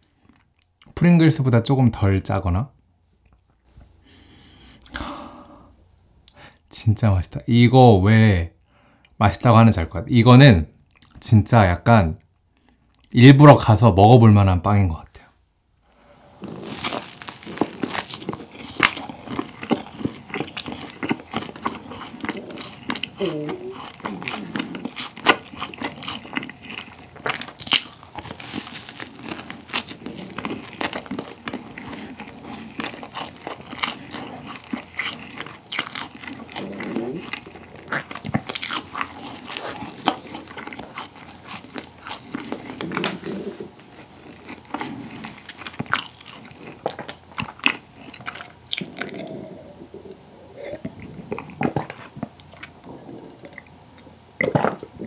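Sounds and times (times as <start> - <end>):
crunching bread crust: 16.0 - 49.4
wet chewing: 16.1 - 55.0.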